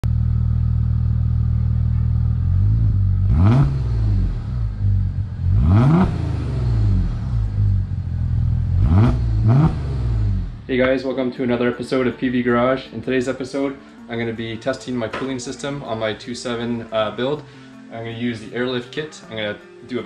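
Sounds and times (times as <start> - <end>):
car engine idling and revving: 0.0 - 10.7.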